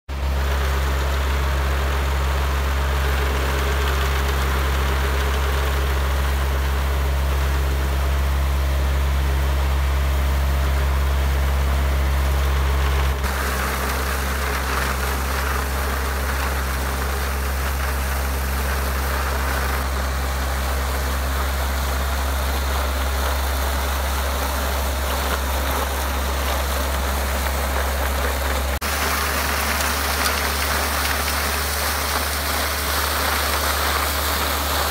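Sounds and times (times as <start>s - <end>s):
tractor diesel engine running: 0.1s - 34.9s
wire brush scraping cobblestones: 13.2s - 34.9s.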